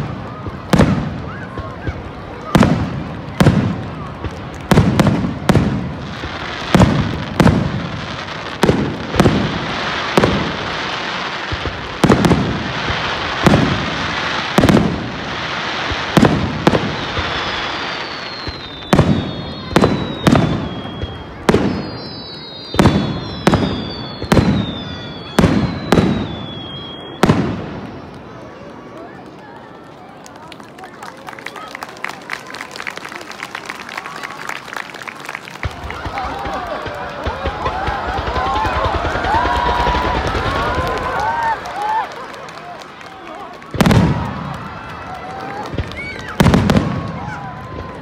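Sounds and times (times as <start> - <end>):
fireworks bangs: 0.0 - 29.4, 33.4 - 48.0
fireworks crackle: 0.0 - 48.0
fireworks whistles falling: 6.4 - 28.2, 43.0 - 48.0.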